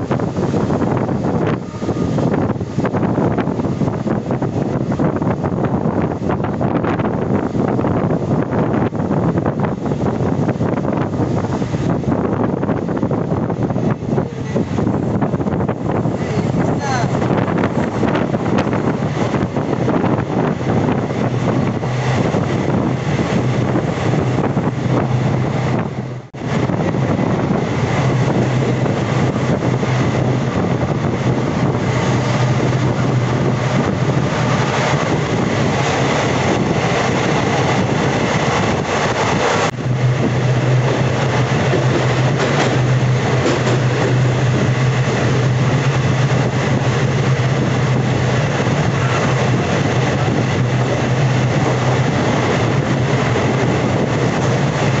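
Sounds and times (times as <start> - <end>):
train wheels rumbling on rails: 0.0 - 55.0
low hum: 39.7 - 55.0.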